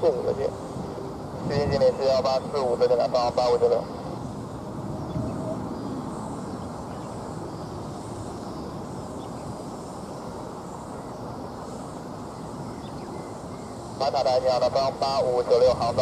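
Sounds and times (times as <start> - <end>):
distant aircraft engines rumbling: 0.0 - 16.0.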